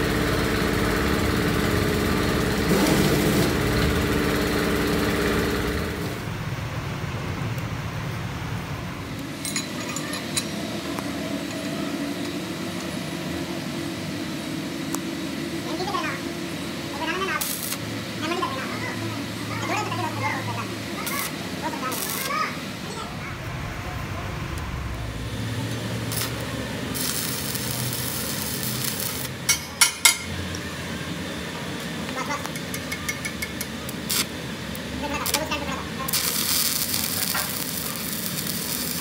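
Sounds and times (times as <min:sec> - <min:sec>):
machine hum: 0:00.0 - 0:31.9, 0:34.4 - 0:39.0
welding arc crackling and hissing: 0:16.8 - 0:22.8, 0:25.0 - 0:29.8, 0:33.4 - 0:39.0.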